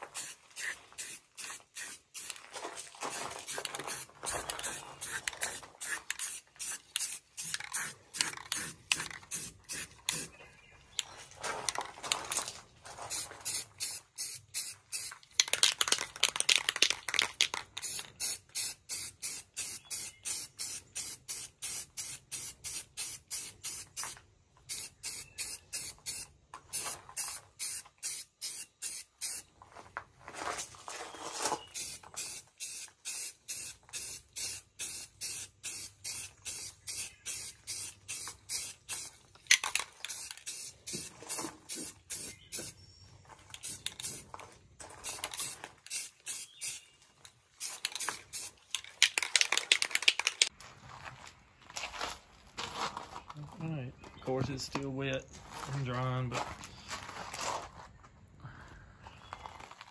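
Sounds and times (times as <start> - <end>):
spray paint hissing: 0.0 - 2.4, 3.1 - 10.4, 13.1 - 29.5, 31.7 - 42.8, 43.5 - 44.3, 45.0 - 50.5.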